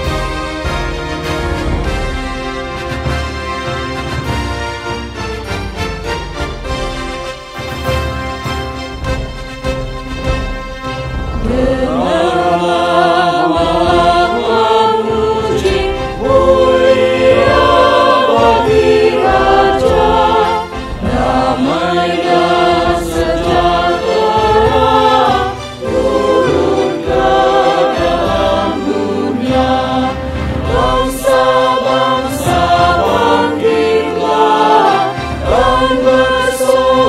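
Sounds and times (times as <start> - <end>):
mixed choir singing: 0.0 - 4.6, 11.0 - 37.0
low instrumental accompaniment: 0.0 - 37.0.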